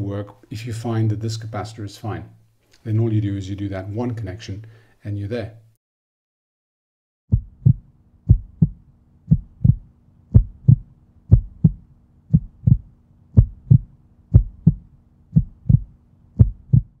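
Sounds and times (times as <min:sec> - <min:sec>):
faint low hum: 0:07.3 - 0:17.0
heartbeat thumps: 0:07.3 - 0:17.0.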